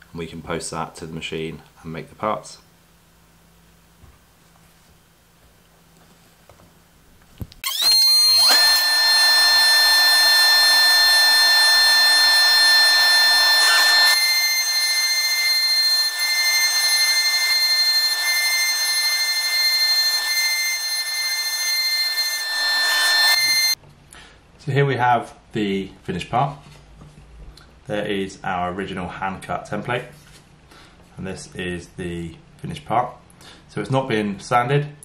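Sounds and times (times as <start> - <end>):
dust extraction running: 7.6 - 23.8
router bit cutting board: 7.6 - 23.8
router spindle whine: 7.6 - 23.8.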